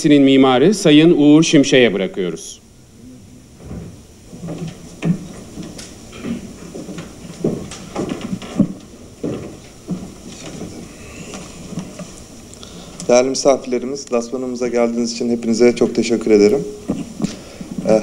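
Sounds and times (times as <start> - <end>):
microphone handling noise: 2.9 - 13.2, 15.9 - 18.0
footsteps: 3.5 - 14.2, 15.7 - 18.0.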